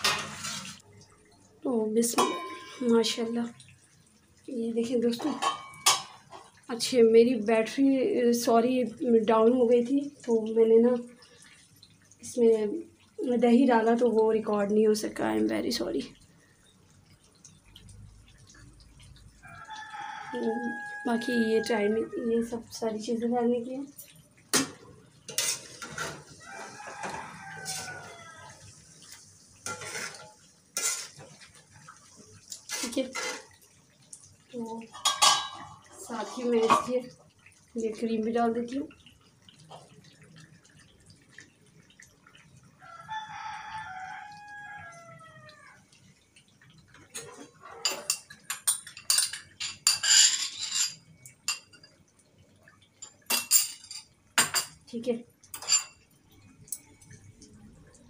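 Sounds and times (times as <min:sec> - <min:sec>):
rooster crowing: 0:19.4 - 0:22.4, 0:26.4 - 0:28.6, 0:42.8 - 0:45.8
spoon scraping metal wok: 0:29.7 - 0:31.2.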